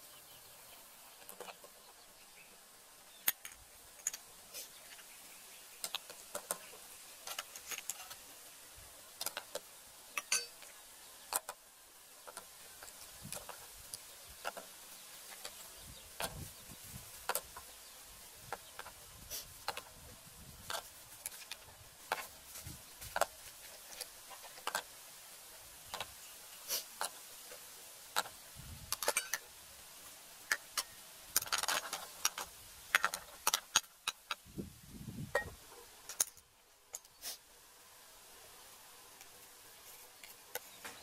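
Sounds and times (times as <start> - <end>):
broth simmering with pops: 0.0 - 34.6, 39.1 - 41.0
metal lid on pot: 10.2 - 10.6.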